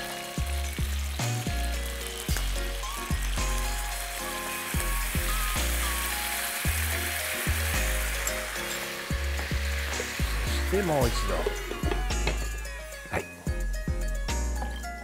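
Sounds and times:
music with plucked bass line: 0.0s - 4.2s, 9.1s - 15.0s
ribs sizzling in a frying pan: 0.0s - 13.0s.

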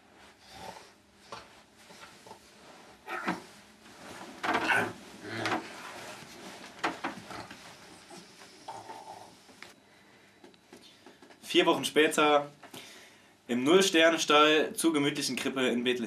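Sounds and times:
rustles of people moving: 0.1s - 9.8s.

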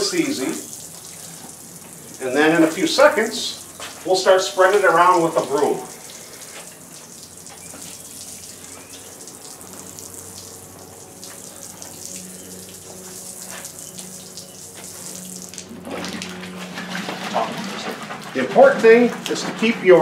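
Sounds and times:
liquid splashing onto concrete: 5.4s - 16.5s.

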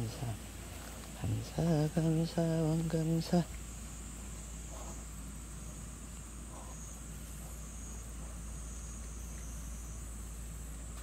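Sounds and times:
insects droning: 0.0s - 11.0s.

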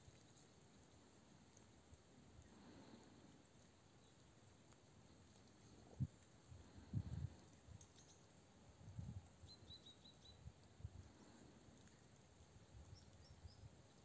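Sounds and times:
small bird chirping: 7.8s - 8.4s, 9.4s - 11.4s, 12.6s - 13.8s.

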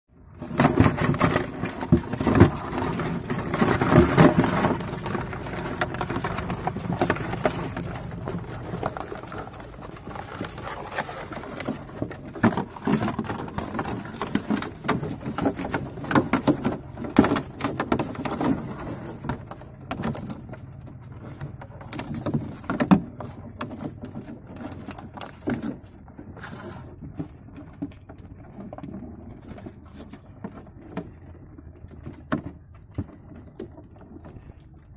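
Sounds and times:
crabs clicking and scraping: 0.2s - 34.9s.

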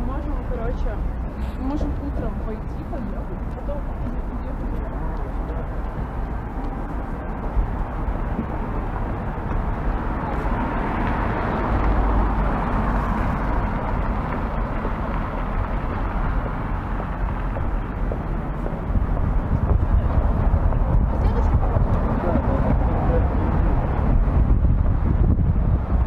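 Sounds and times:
cars rushing on road: 0.0s - 26.0s
vehicle passing by: 6.8s - 26.0s.

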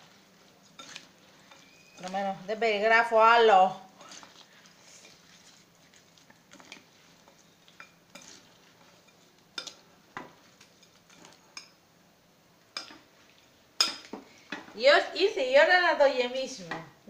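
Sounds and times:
spoon scraping in a bowl: 0.6s - 2.3s, 4.0s - 9.8s.

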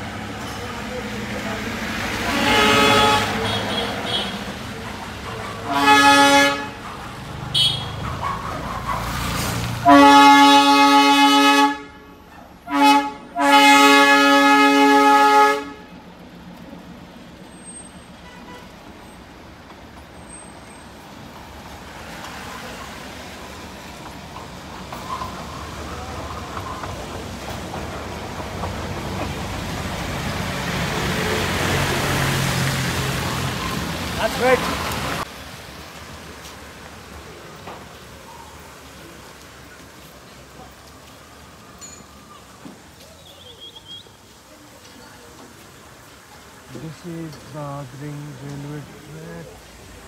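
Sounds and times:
train horn blasts: 2.3s - 4.4s, 5.7s - 6.8s, 9.8s - 16.0s.

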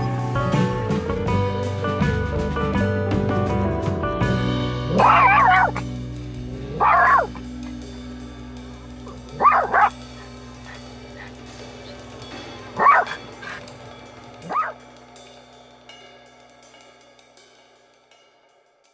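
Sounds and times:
small dog yapping: 4.9s - 5.8s, 6.7s - 7.8s, 8.8s - 12.0s, 12.7s - 13.7s, 14.4s - 14.8s.

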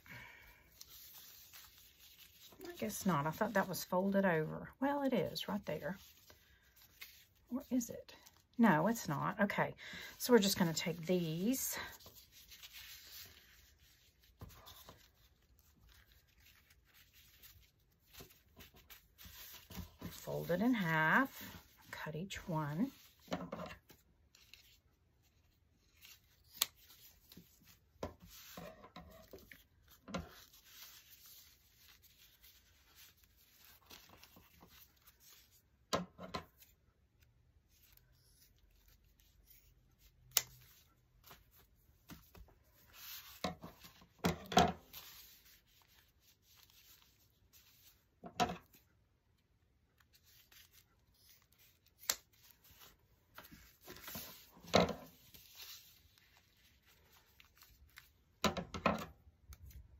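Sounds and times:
plastic tablecloth rustling: 0.3s - 4.0s, 10.3s - 36.7s, 37.7s - 48.9s, 49.9s - 59.9s.

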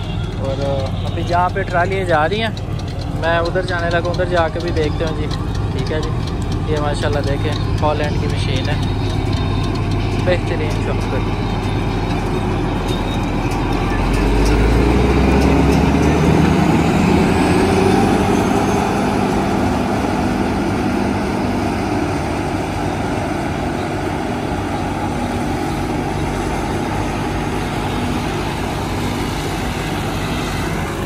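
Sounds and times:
forage harvester chopping maize: 0.0s - 17.8s.

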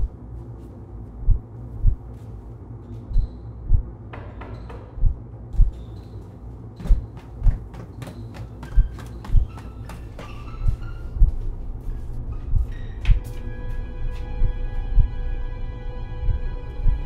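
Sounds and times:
heartbeat double thump: 1.2s - 2.0s, 3.1s - 3.9s, 5.0s - 5.7s.

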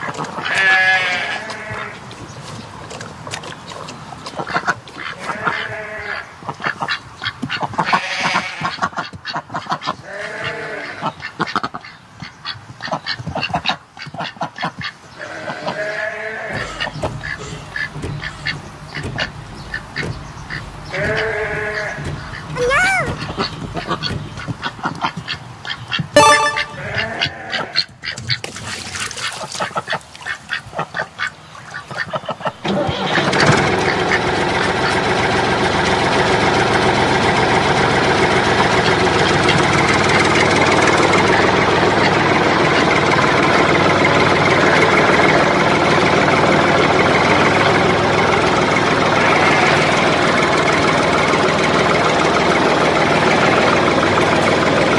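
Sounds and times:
duck-like quacking: 4.5s - 14.7s, 15.3s - 27.8s
tractor engine running: 16.5s - 27.5s, 32.2s - 54.9s.

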